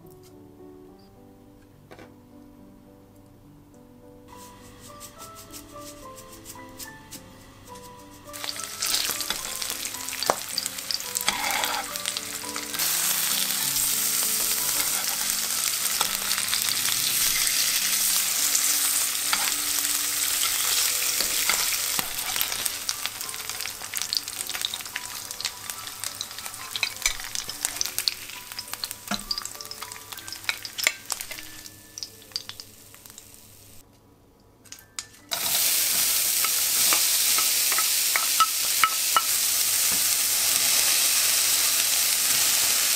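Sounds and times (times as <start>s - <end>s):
onion sizzling and stirred: 4.3s - 33.8s, 34.9s - 42.9s
fish sizzling in frying pan: 4.4s - 33.8s, 35.3s - 42.9s
metal spatula scraping and tapping: 5.6s - 10.5s, 11.1s - 12.9s, 13.8s - 18.6s, 19.2s - 19.7s, 20.4s - 23.6s, 26.2s - 31.7s, 35.0s - 40.2s.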